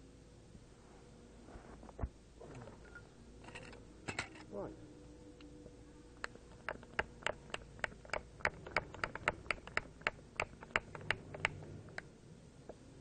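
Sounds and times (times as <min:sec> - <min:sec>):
hand air pump clicking: 0:06.5 - 0:12.1.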